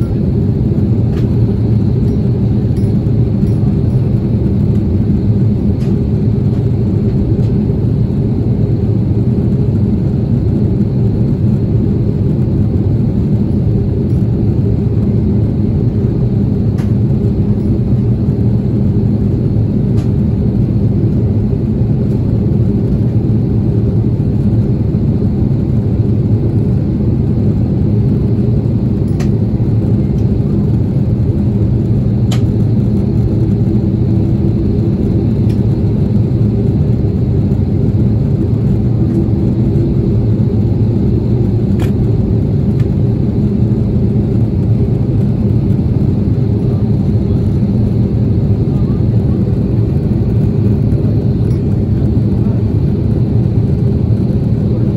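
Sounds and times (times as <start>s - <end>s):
airplane cabin rumble: 0.0s - 54.9s.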